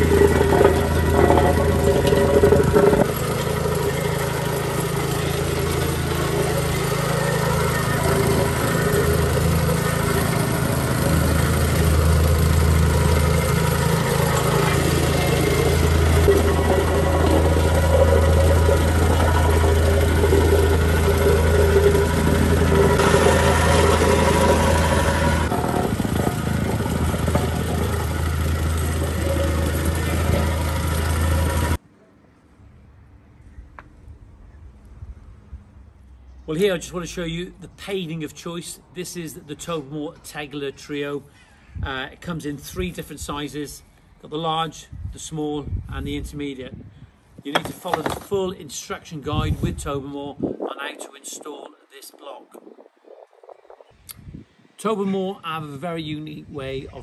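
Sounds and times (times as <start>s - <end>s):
compactor plate rattle: 0.0s - 31.8s
plate compactor engine hum: 0.0s - 31.8s.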